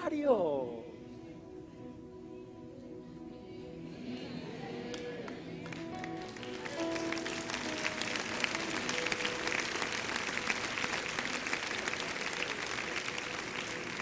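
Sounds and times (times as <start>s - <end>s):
crowd applauding: 4.9s - 14.0s.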